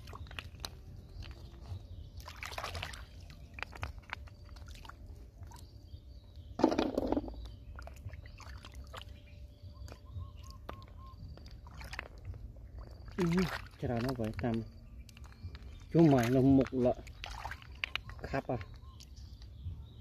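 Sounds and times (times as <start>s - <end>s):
hands splashing in muddy water: 0.0s - 5.7s, 9.9s - 19.1s.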